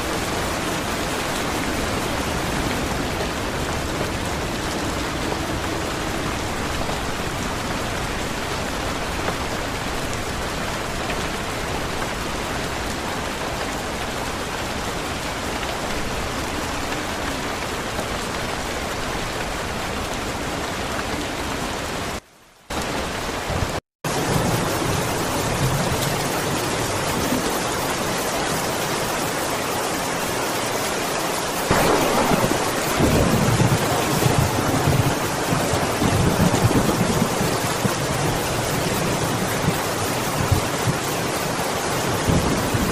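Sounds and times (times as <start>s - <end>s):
heavy rainfall hiss: 0.0s - 42.9s
low rumble of thunder: 31.7s - 42.9s.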